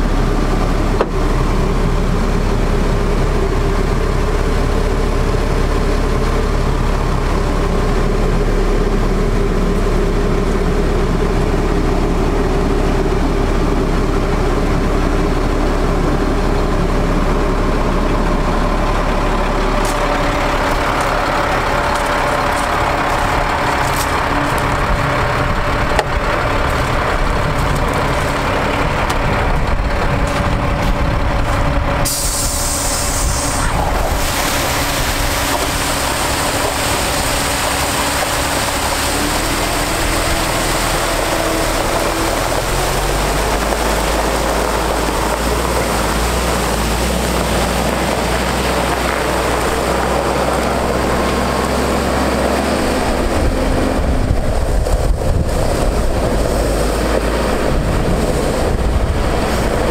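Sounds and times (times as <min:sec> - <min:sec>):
diesel truck engine: 0:00.0 - 0:59.9
water spraying onto gravel: 0:19.7 - 0:28.9, 0:32.0 - 0:59.9
air hiss burst: 0:32.0 - 0:35.2.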